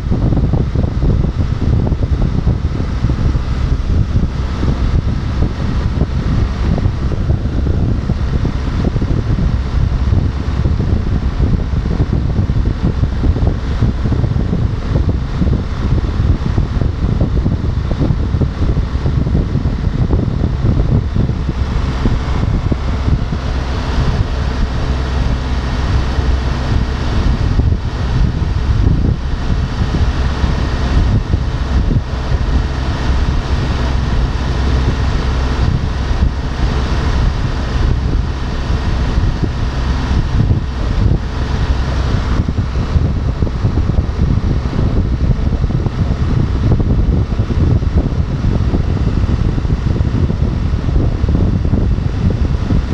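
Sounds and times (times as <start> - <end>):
motorcycle engine droning: 0.0 - 52.9
wind rushing over microphone: 0.0 - 52.9.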